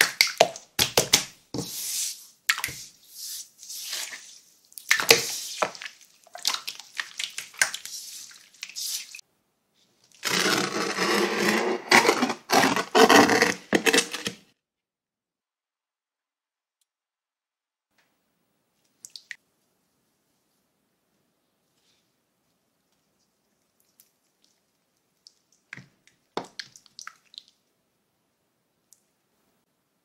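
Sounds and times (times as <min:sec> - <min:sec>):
slime squelching by hand: 0:00.0 - 0:09.2.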